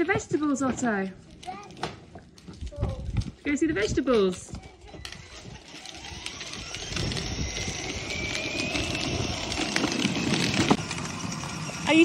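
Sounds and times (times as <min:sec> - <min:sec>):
plastic wheels rumbling on concrete: 0:00.0 - 0:12.0
toy electric motor whining: 0:03.9 - 0:12.0.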